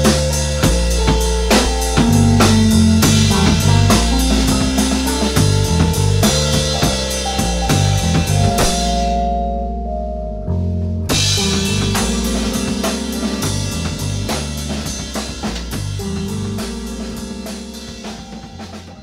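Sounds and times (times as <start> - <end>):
drum kit: 0.0 - 9.3, 11.0 - 19.0
bass guitar: 0.0 - 19.0.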